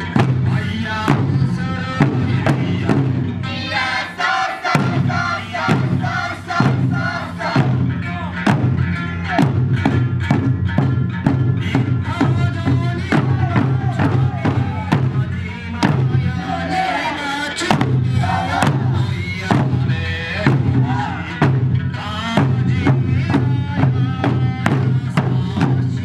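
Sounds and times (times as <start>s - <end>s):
large barrel drums beating: 0.0s - 4.0s, 4.7s - 16.9s, 17.7s - 26.0s
song with music: 0.0s - 26.0s
dancers shouting calls: 18.1s - 19.0s.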